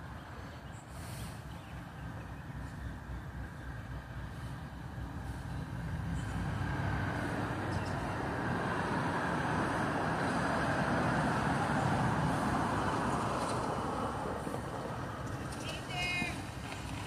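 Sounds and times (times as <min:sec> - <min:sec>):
locomotive engine rumble: 0:00.0 - 0:17.0.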